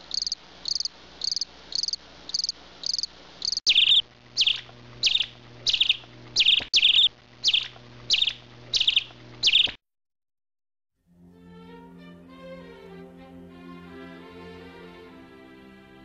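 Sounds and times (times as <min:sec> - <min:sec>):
cricket chirping: 0:00.0 - 0:09.8
soft string music: 0:11.0 - 0:16.0.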